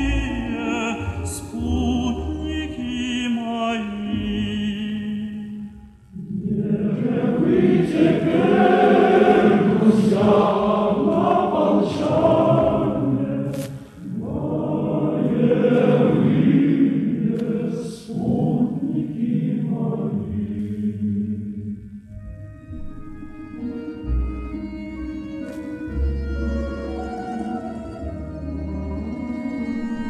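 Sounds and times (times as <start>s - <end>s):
choir singing: 0.0s - 22.0s, 23.9s - 30.0s.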